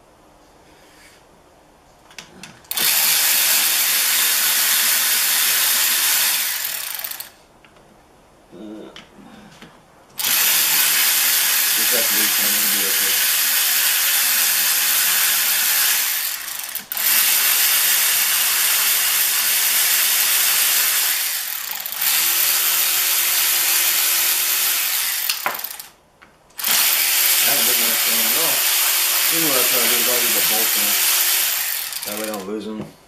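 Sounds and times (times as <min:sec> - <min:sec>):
cordless power tool running: 0:02.7 - 0:07.4, 0:10.2 - 0:26.0, 0:26.6 - 0:32.5.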